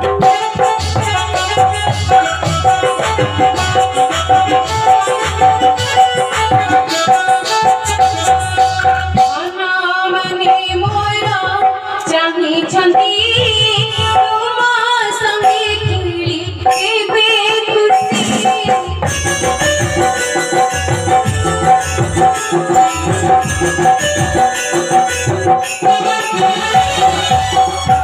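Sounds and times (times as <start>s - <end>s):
instrumental dance tune: 0.0s - 9.5s, 18.3s - 28.0s
drums: 0.0s - 28.0s
person singing with vibrato: 0.0s - 28.0s.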